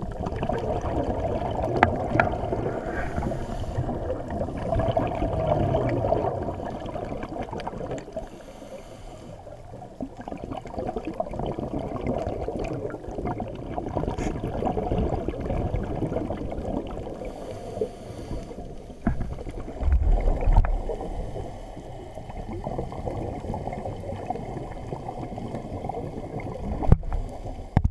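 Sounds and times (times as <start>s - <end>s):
diver's exhaled bubbles: 0.0s - 8.2s, 10.0s - 17.5s, 19.0s - 27.9s
deep underwater rumble: 0.0s - 27.9s
muffled underwater rushing water: 0.0s - 27.9s.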